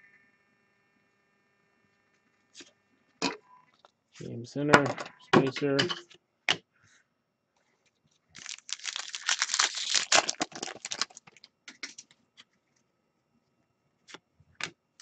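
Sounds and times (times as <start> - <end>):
foil wrapper tearing and crinkling: 8.4 - 12.0.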